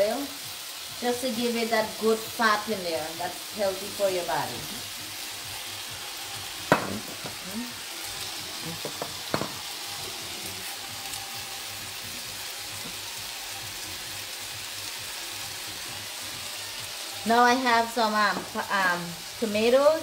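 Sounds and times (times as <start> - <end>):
food sizzling in pan: 0.0 - 20.0
utensil knocks: 6.7 - 7.4, 8.8 - 9.6.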